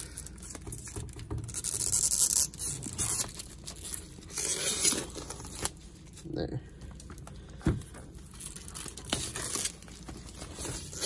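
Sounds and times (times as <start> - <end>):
plastic film crinkling: 8.0 - 11.0.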